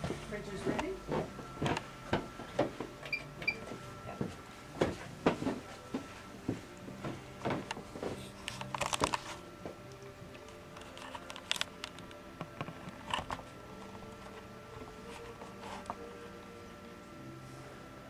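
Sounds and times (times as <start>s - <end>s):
printer machine hum: 12.4s - 18.0s.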